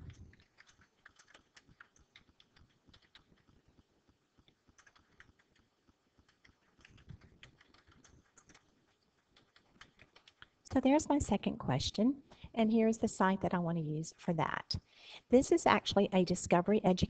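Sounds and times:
typing on keyboard: 0.0s - 10.7s.

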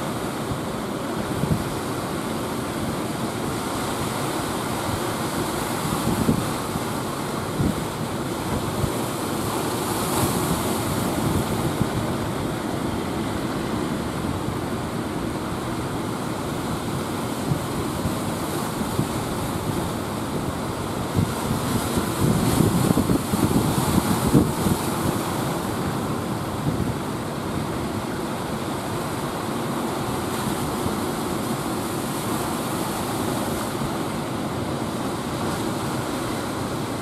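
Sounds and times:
sea surf breaking: 0.0s - 37.0s
wind buffeting the microphone: 0.5s - 2.0s, 5.0s - 28.0s.

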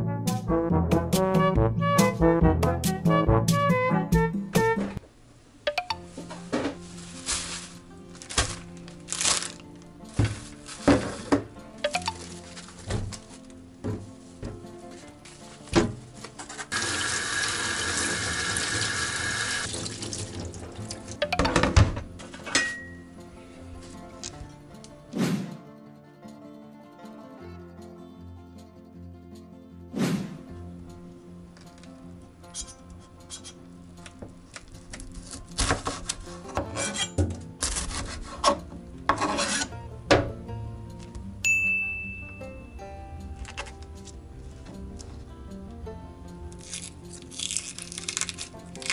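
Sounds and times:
tap water running into sink: 16.7s - 21.2s
knife slicing onion on board: 35.2s - 39.7s.

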